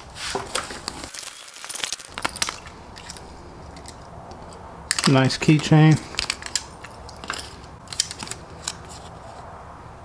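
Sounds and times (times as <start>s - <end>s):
packing material crinkling: 0.5s - 3.2s.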